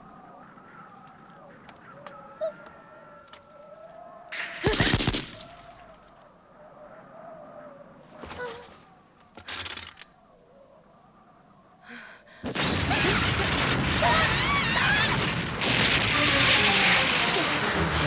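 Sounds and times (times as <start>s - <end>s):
breathy gasps: 11.8s - 12.6s
rock and concrete crashing: 12.6s - 18.0s.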